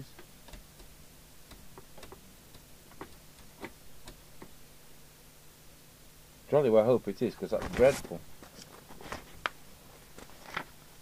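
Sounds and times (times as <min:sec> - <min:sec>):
faint low hum: 0:00.0 - 0:11.0
light clicks and ticks: 0:00.1 - 0:04.6.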